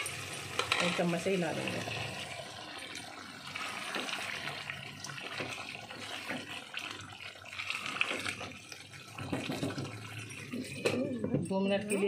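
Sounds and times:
gravy bubbling and crackling: 0:00.0 - 0:11.5
spatula stirring thick gravy: 0:02.0 - 0:10.7.

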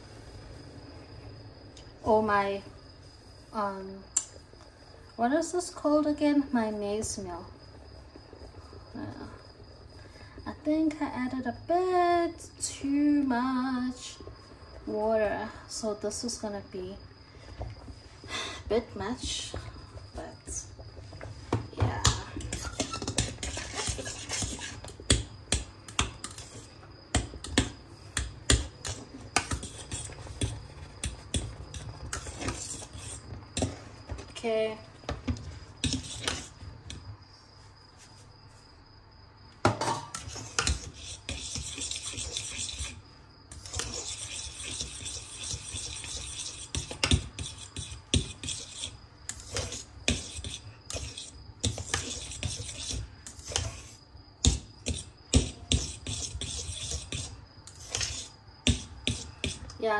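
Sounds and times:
metal utensil scraping a pot: 0:22.3 - 0:24.9, 0:28.5 - 0:33.8, 0:35.8 - 0:36.6, 0:39.8 - 0:54.0, 0:54.8 - 0:59.6.

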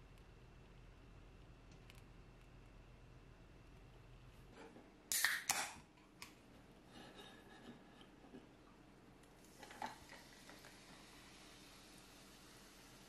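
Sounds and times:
fizzing hiss: 0:09.7 - 0:13.0.

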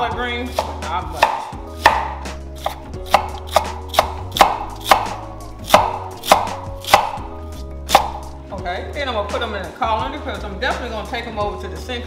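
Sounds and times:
knife slicing cabbage: 0:00.4 - 0:08.3.

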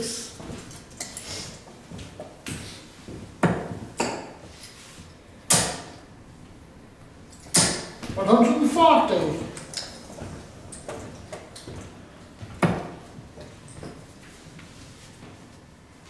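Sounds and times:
darts thudding into dartboard: 0:05.5 - 0:06.0, 0:07.5 - 0:08.2.

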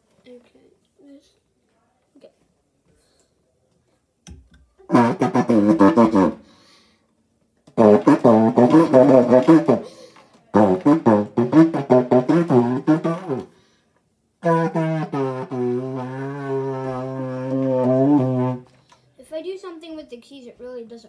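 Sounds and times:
saxophone low notes through pipe: 0:04.9 - 0:06.4, 0:07.8 - 0:09.9, 0:10.5 - 0:13.5, 0:14.4 - 0:18.7.

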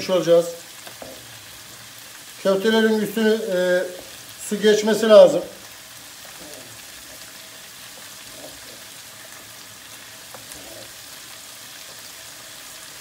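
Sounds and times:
stew simmering hiss: 0:00.0 - 0:13.0
wooden spoon scraping pot: 0:06.2 - 0:09.3, 0:10.1 - 0:11.2.

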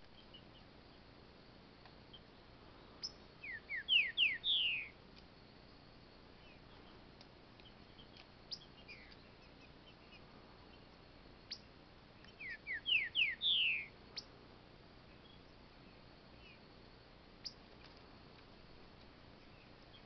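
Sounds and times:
bird whistled song: 0:03.0 - 0:05.0, 0:08.0 - 0:10.2, 0:12.3 - 0:14.3.

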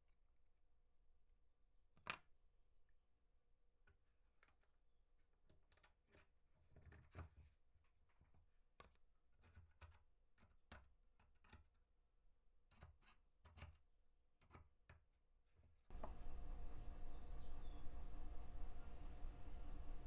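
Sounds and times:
faint clicks and taps of metal tool: 0:08.8 - 0:11.8, 0:12.6 - 0:13.8, 0:14.4 - 0:15.1.

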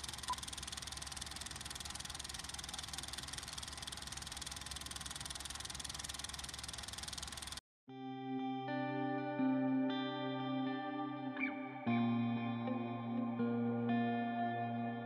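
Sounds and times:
machine running with hiss: 0:00.0 - 0:07.6.

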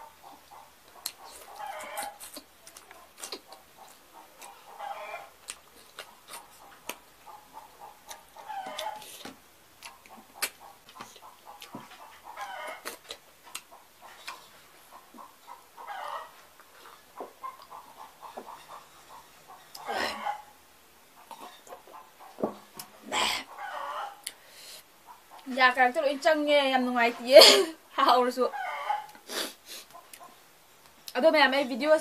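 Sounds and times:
lip smacks and mouth clicks: 0:00.5 - 0:04.6, 0:05.4 - 0:07.0, 0:08.8 - 0:11.7, 0:12.7 - 0:14.5.

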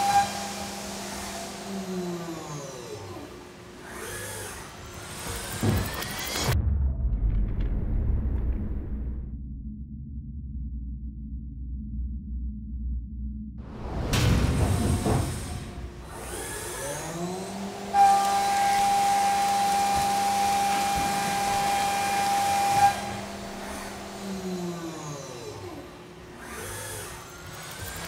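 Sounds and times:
milling machine whine: 0:00.0 - 0:06.5, 0:14.0 - 0:28.0.

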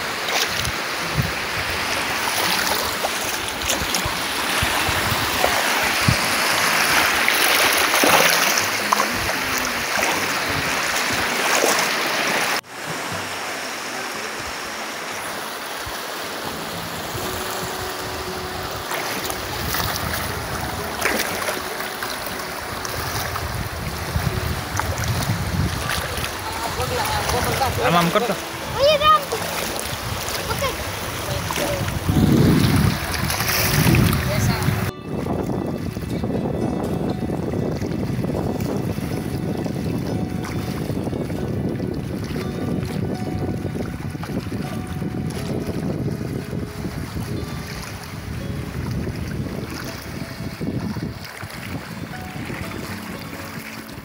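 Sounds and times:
water sloshing around wading legs: 0:00.0 - 0:35.0
sea surf washing: 0:00.0 - 0:54.0.

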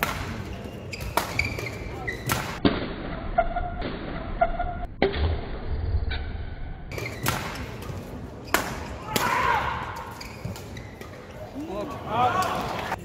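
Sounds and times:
rackets striking shuttlecock: 0:00.0 - 0:02.9, 0:06.9 - 0:09.3
shoes squeaking on court: 0:00.2 - 0:02.6, 0:06.9 - 0:09.0, 0:09.9 - 0:12.1.

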